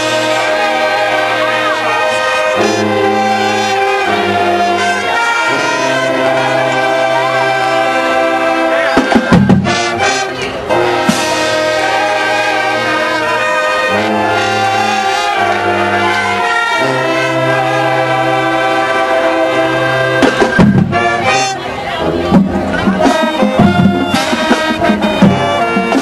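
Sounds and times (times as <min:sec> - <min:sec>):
brass sustained chords: 0:00.0 - 0:26.0
marching band playing: 0:00.0 - 0:26.0.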